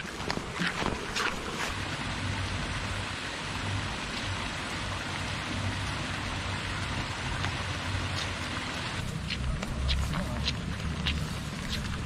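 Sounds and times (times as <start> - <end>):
low hum: 0.0 - 12.0
running water hiss: 0.0 - 12.0.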